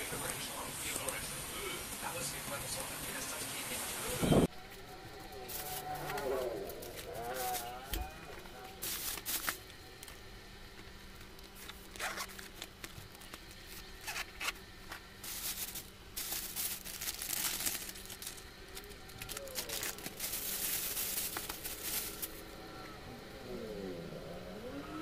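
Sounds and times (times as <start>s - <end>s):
plastic bag crinkling: 8.8s - 10.2s, 11.1s - 22.5s.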